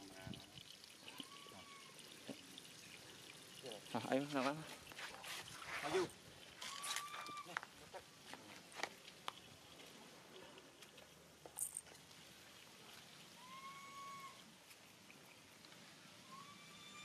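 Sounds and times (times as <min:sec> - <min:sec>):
whistled animal call: 0:16.2 - 0:17.0.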